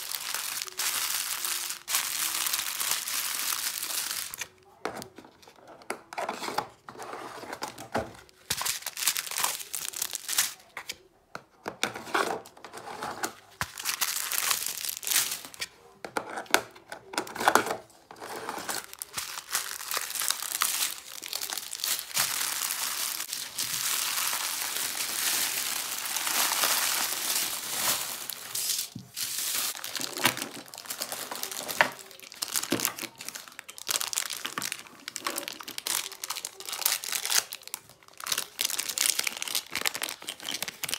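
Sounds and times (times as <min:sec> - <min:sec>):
plastic bags crinkling: 0:00.0 - 0:04.6, 0:08.3 - 0:10.6, 0:13.6 - 0:15.6, 0:18.2 - 0:40.9.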